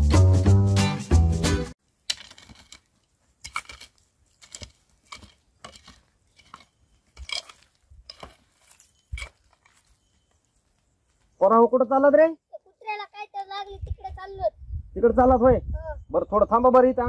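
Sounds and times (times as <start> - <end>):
hoe striking stony soil: 1.8 - 10.4.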